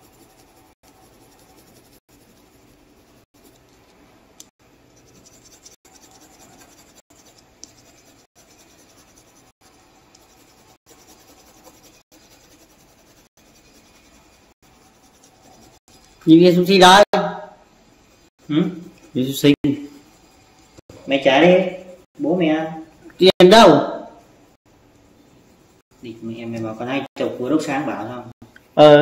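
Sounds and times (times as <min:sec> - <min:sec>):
pencil scratching on paper: 0:00.0 - 0:04.0, 0:04.8 - 0:16.4, 0:18.9 - 0:21.0.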